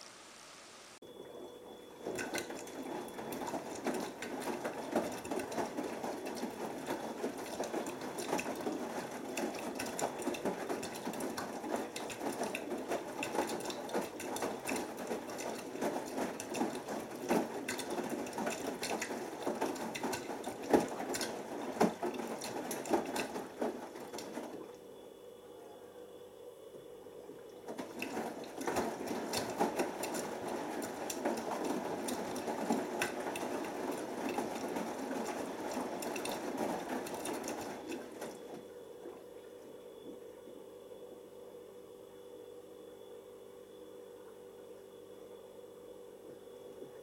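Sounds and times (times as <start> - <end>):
washing machine drum tumbling: 2.0 - 24.8, 27.6 - 38.7.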